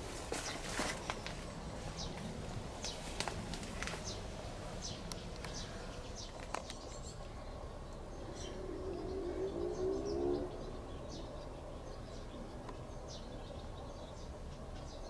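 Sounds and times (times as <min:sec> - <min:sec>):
steady low rumble: 0:01.4 - 0:12.6
bird chirps: 0:04.0 - 0:15.0
low cooing call: 0:07.3 - 0:12.6.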